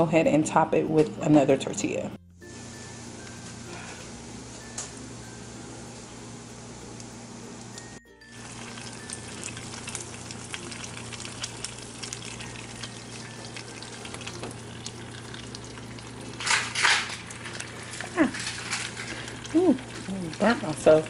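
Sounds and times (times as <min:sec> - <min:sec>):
quesadilla sizzling in skillet: 0:02.4 - 0:21.0
crackles and pops of frying: 0:04.5 - 0:21.0.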